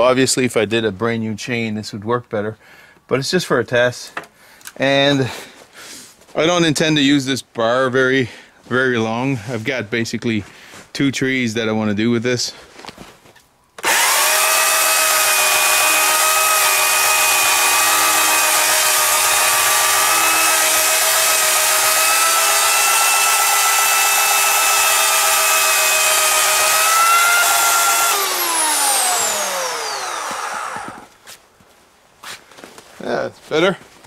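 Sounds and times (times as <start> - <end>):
motor winding down: 13.8 - 31.1
electric chainsaw cutting wood: 13.8 - 31.2.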